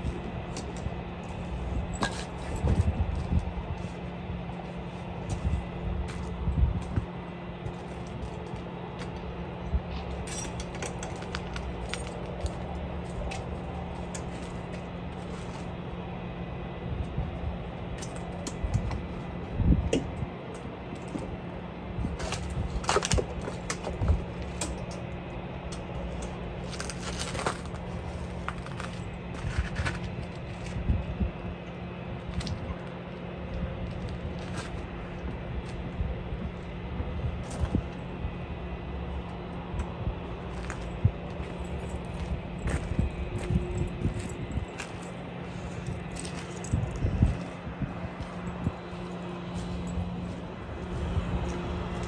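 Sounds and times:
low engine hum: 0:00.0 - 0:52.0
metal chain hooks clinking: 0:01.3 - 0:02.9, 0:10.1 - 0:13.5.

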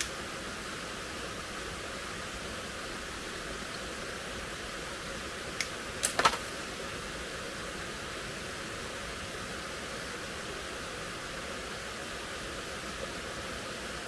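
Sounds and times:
forest stream rushing: 0:00.0 - 0:14.0.

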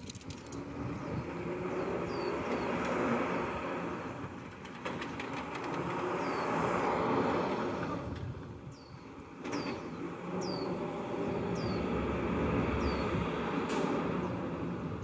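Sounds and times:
motor vehicle rumble: 0:00.0 - 0:15.0.

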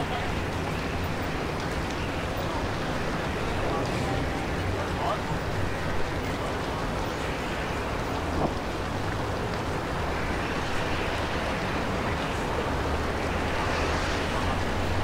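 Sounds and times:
rushing noise: 0:00.0 - 0:15.0.

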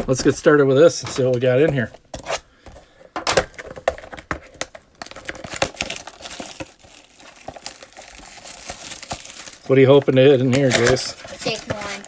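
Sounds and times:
plastic wrap crinkling and tearing: 0:03.2 - 0:12.0.

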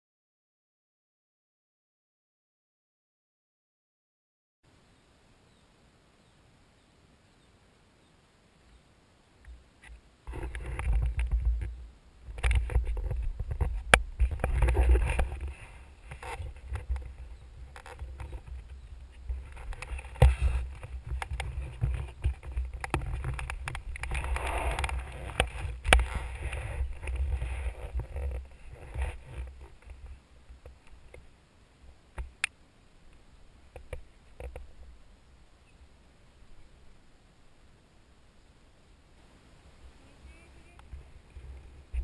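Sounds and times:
helmet rubbing and rustling: 0:12.6 - 0:29.8.

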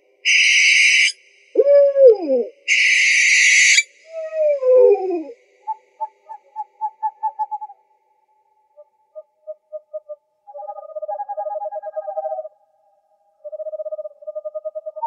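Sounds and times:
owl screeching: 0:00.2 - 0:05.3
owl hooting: 0:00.2 - 0:07.8, 0:08.8 - 0:12.6, 0:13.4 - 0:15.0.

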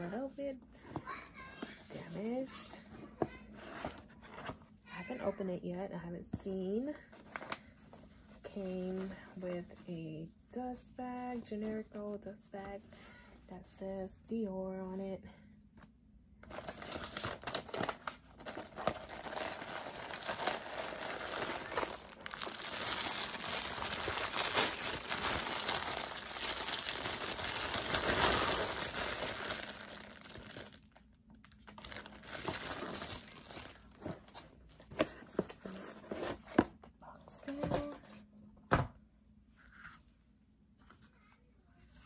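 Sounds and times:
tissue paper rustling: 0:16.4 - 0:30.8, 0:31.5 - 0:34.4
plastic bag crinkling: 0:16.4 - 0:34.8.

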